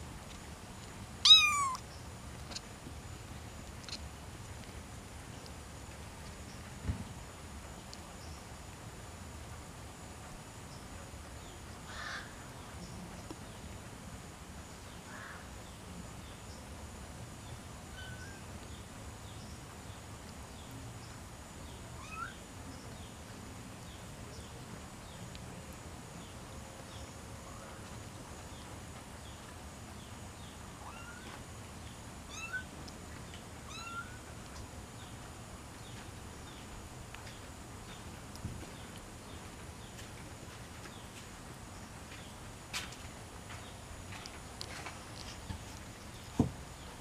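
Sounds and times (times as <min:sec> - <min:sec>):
kittens mewing: 0:01.2 - 0:01.8
faint high chirping: 0:01.2 - 0:02.6, 0:17.9 - 0:18.5, 0:21.9 - 0:22.9, 0:30.7 - 0:31.4.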